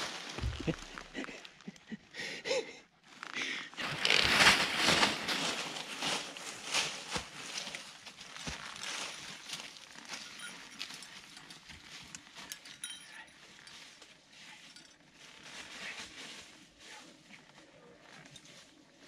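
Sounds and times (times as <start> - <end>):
footsteps crunching dry leaves: 0.0 - 1.3, 3.8 - 10.9
footsteps scuffing on rock: 0.4 - 1.1
light clinks: 10.0 - 15.0.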